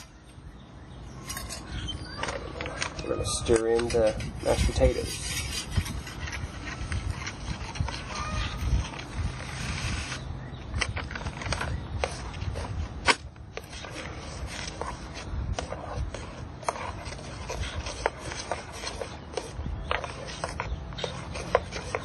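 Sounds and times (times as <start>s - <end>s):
utensil scraping metal pot: 1.2s - 10.2s.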